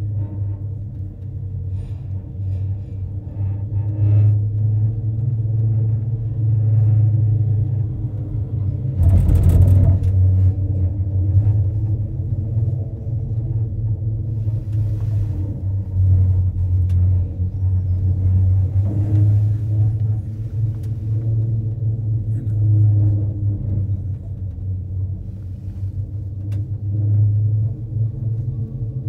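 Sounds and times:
cable car cabin rumbling: 0.0 - 29.0
cable car rattling: 0.0 - 29.0.

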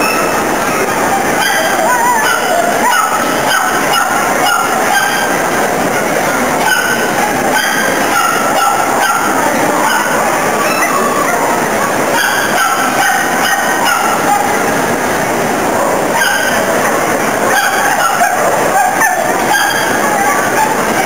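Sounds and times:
exhibition hall din: 0.0 - 21.0
high honk-like calls: 17.5 - 21.0.

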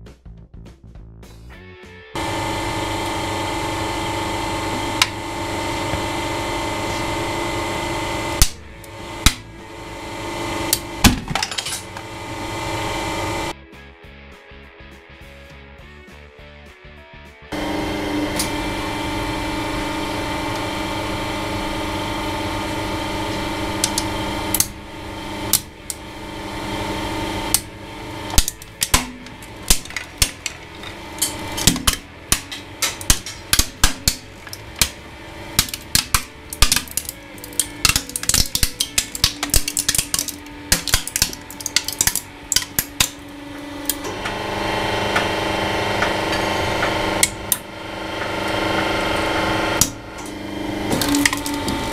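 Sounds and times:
hydraulic press humming: 2.2 - 13.6, 17.5 - 51.9
plastic figure cracking: 35.6 - 43.2.

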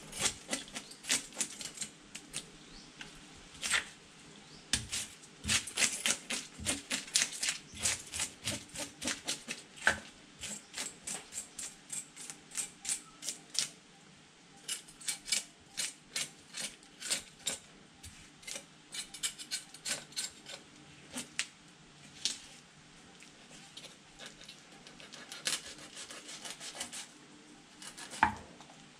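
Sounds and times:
knife scraping fish scales: 0.0 - 2.5, 4.8 - 13.8, 14.6 - 21.4, 23.5 - 27.1, 27.8 - 28.4.

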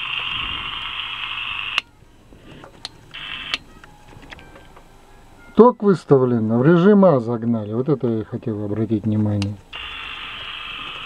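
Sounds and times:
radio hiss through loudspeaker: 0.0 - 1.8, 2.4 - 3.6, 5.6 - 11.0.

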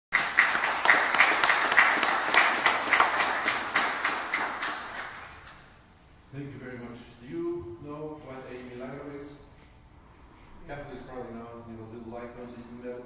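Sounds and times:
small audience applauding: 0.1 - 5.7.

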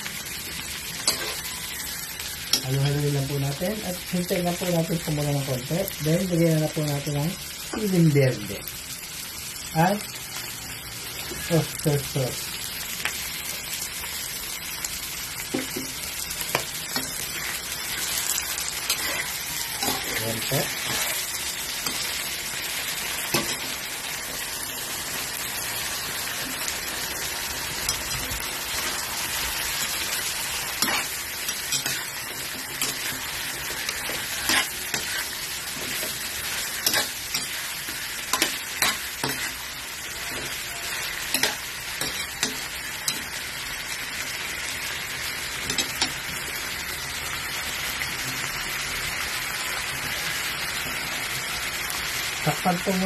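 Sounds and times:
food sizzling in hot oil: 0.0 - 53.0
metal spatula scraping a wok: 1.0 - 1.5, 16.5 - 24.5, 27.7 - 43.4.

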